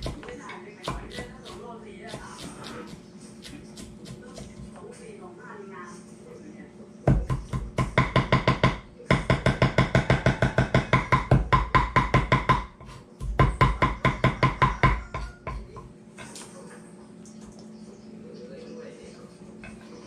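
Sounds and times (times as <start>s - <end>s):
knife chopping on wooden board: 0.0s - 4.7s, 7.1s - 15.7s.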